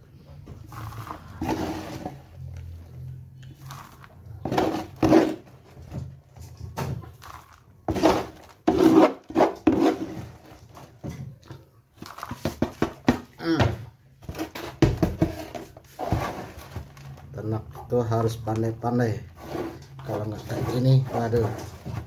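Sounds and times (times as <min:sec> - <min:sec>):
plastic scoop scraping feed: 0:00.6 - 0:11.0, 0:12.0 - 0:13.0, 0:14.2 - 0:17.5, 0:19.2 - 0:22.0.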